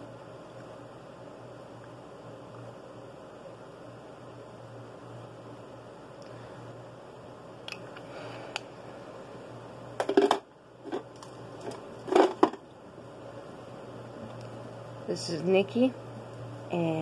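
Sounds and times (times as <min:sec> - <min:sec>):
steady low hum: 0:00.0 - 0:17.0
makeup items knocking and rustling: 0:10.0 - 0:12.6.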